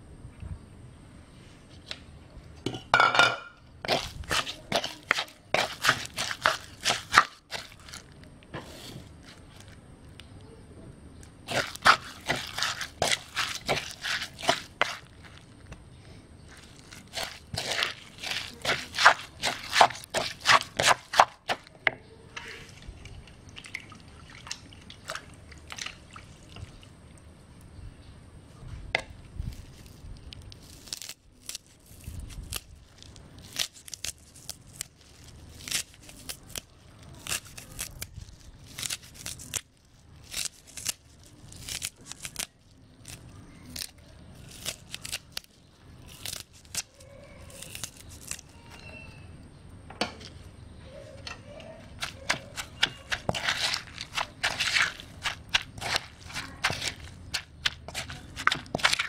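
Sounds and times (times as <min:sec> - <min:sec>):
spoon tossing shrimp in mortar: 0:03.8 - 0:09.8, 0:11.4 - 0:15.8, 0:16.4 - 0:22.6, 0:50.6 - 0:59.0.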